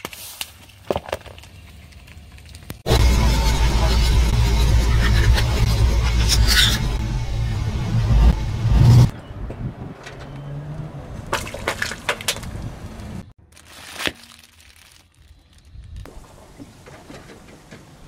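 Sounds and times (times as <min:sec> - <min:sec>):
tyres crushing small objects: 0:00.0 - 0:02.8
loud low rumble: 0:02.9 - 0:09.2.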